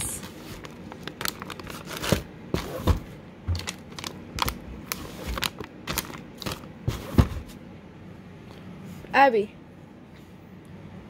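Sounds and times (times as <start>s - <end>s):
treat packets clicking and rustling: 0.1s - 2.8s, 3.5s - 6.7s.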